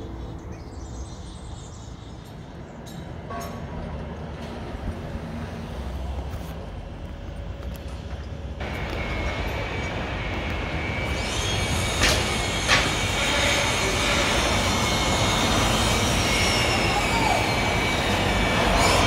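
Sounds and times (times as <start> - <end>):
construction machinery rumbling: 0.0 - 19.0
high steady squeal: 8.6 - 19.0.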